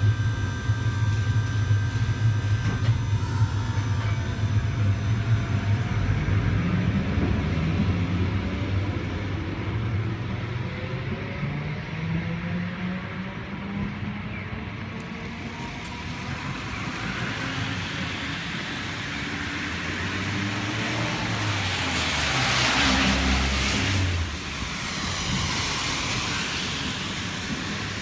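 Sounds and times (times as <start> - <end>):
low engine hum: 0.0 - 28.0
tyres hissing on wet road: 16.3 - 28.0.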